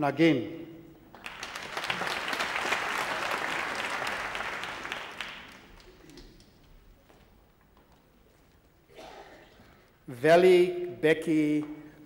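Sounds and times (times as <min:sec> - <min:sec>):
audience applauding: 0:01.1 - 0:06.6.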